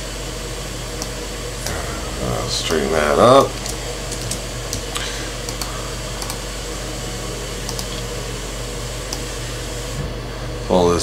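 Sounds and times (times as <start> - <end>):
electrical hum and hiss: 0.0 - 11.0
computer mouse clicks: 3.6 - 6.4, 7.7 - 7.9.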